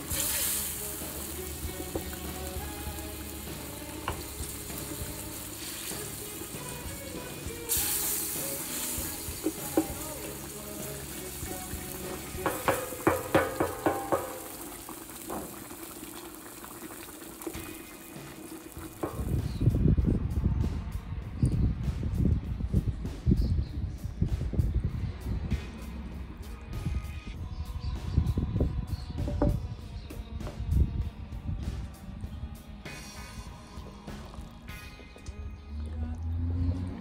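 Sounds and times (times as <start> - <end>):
meat sizzling in pan: 0.0 - 19.6
spatula knocking and scraping pan: 12.2 - 15.6.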